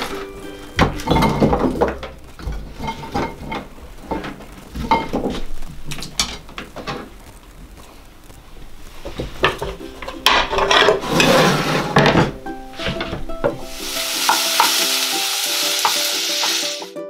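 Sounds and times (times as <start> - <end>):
potato chunks clattering onto plate: 0.8 - 7.1, 9.2 - 11.4
colander shaken: 13.7 - 17.0.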